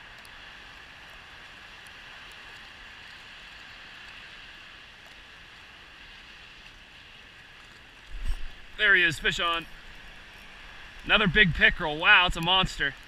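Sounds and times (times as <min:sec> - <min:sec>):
wind: 0:00.0 - 0:13.0
distant traffic: 0:08.5 - 0:13.0.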